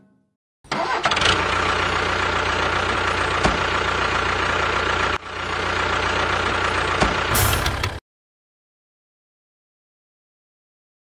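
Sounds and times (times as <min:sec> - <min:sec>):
engine idling: 0:00.7 - 0:08.0.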